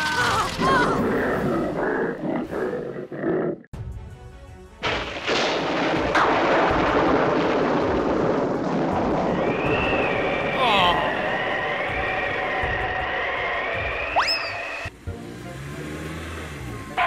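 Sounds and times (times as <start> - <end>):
thunder rumble: 0.5 - 3.7, 4.8 - 14.9
background music: 3.7 - 6.9, 13.9 - 17.0
thunder crack: 4.8 - 14.3.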